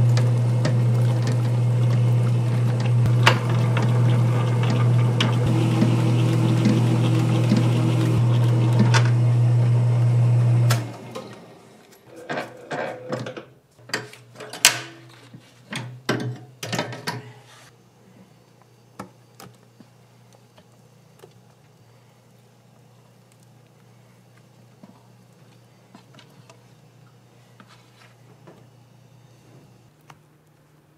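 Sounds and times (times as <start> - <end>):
motor hum: 0.0 - 12.0
faint background hum: 11.2 - 30.9.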